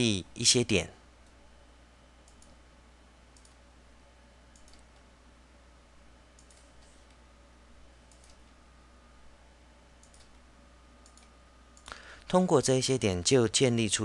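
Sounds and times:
steady low hum: 0:00.0 - 0:14.0
computer mouse clicks: 0:02.2 - 0:02.6, 0:03.3 - 0:03.6, 0:04.5 - 0:05.1, 0:06.4 - 0:07.2, 0:08.1 - 0:08.5, 0:10.0 - 0:10.4, 0:11.0 - 0:12.0.

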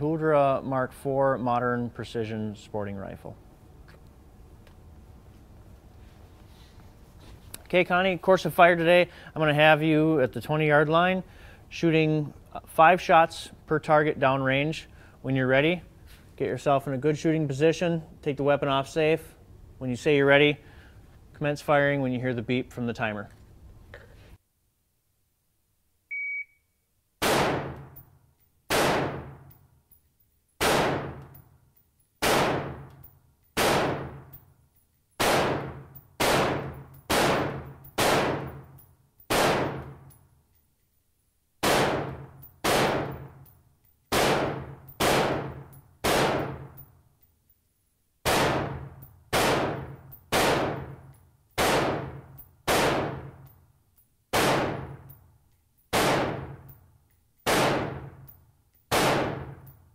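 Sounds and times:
shot timer beep: 0:26.1 - 0:26.8
rifle shots echoing indoors: 0:27.2 - 0:28.1, 0:28.7 - 0:29.6, 0:30.6 - 0:31.4, 0:32.2 - 0:34.4, 0:35.2 - 0:40.2, 0:41.6 - 0:43.5, 0:44.1 - 0:46.9, 0:48.2 - 0:53.5, 0:54.3 - 0:55.2, 0:55.9 - 0:56.8, 0:57.4 - 0:59.8.

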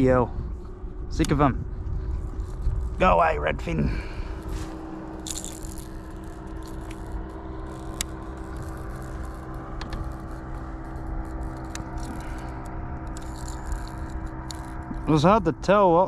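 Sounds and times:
electric motor hum: 0:00.0 - 0:16.0
lure hooks clicking and rattling: 0:05.2 - 0:15.0.

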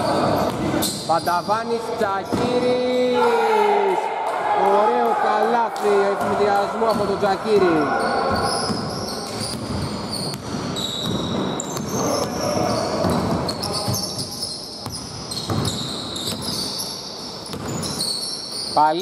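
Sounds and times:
sneakers squeaking on gym floor: 0:00.0 - 0:02.9, 0:06.4 - 0:19.0
basketball dribbling thuds: 0:02.2 - 0:02.7, 0:06.2 - 0:16.6, 0:17.5 - 0:18.0.

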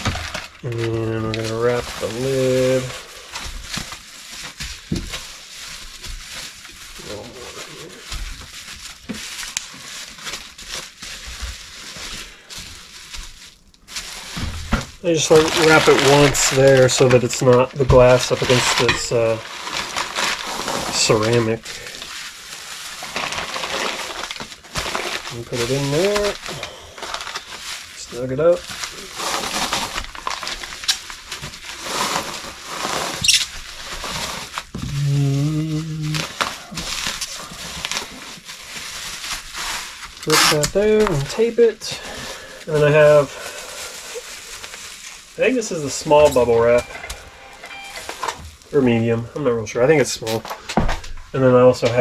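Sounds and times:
sharp crackles: 0:00.0 - 0:50.5
packing wrap crinkling: 0:00.0 - 0:52.0.

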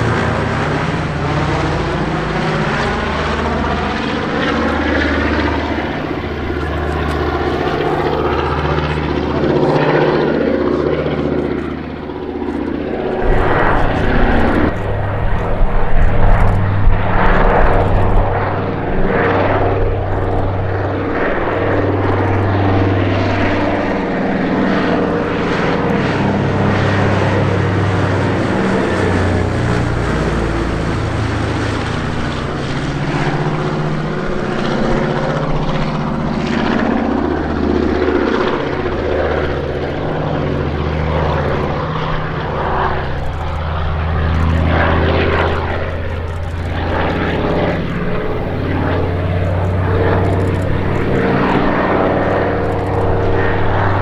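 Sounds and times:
propeller aircraft engine drone: 0:00.0 - 0:54.0.

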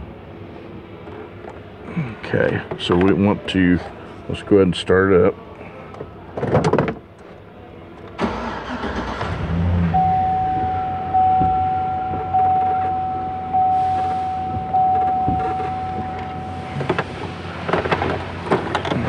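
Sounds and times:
truck engine starting and idling: 0:08.0 - 0:19.0
dashboard warning chime dinging: 0:09.8 - 0:18.2.

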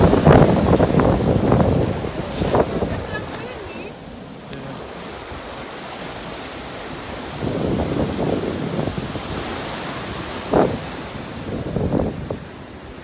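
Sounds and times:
ocean surf breaking on beach: 0:00.0 - 0:13.0
wind buffeting microphone: 0:00.0 - 0:13.0.

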